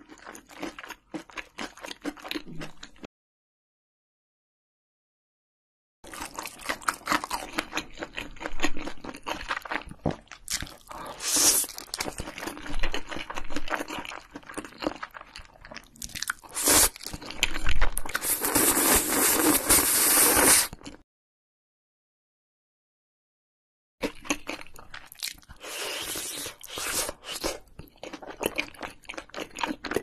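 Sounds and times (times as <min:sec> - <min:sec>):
wet chewing: 0:06.1 - 0:19.5, 0:24.0 - 0:30.0
noodles slurped: 0:10.7 - 0:12.1, 0:16.0 - 0:17.2, 0:18.1 - 0:21.0, 0:25.5 - 0:27.7.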